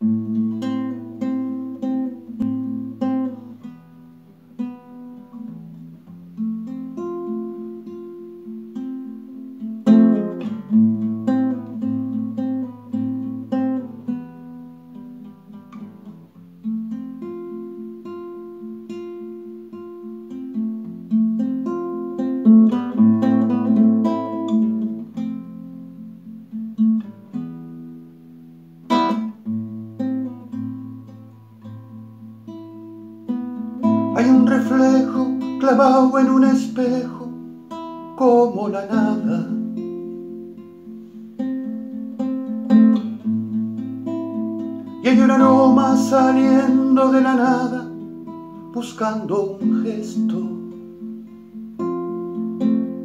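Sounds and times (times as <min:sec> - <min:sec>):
classical guitar fingerpicking: 0:00.0 - 0:53.0.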